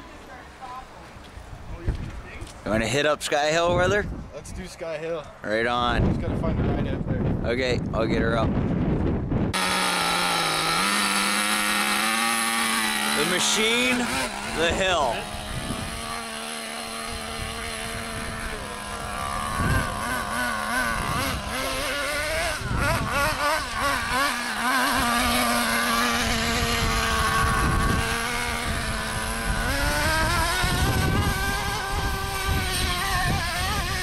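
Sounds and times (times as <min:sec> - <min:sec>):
small engine revving: 0:09.5 - 0:34.0.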